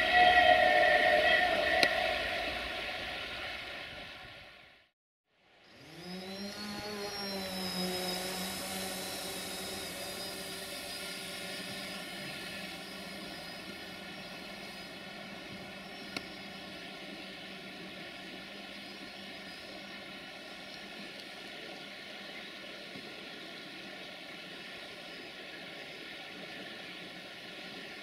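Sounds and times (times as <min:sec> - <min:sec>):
drone propellers humming: 0:05.8 - 0:21.1
hiss: 0:06.5 - 0:15.2.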